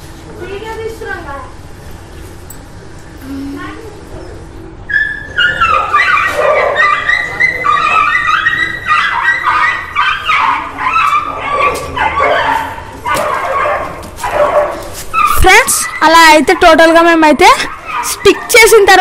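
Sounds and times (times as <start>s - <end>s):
animal whining and yelping: 4.2s - 16.9s, 17.6s - 19.0s.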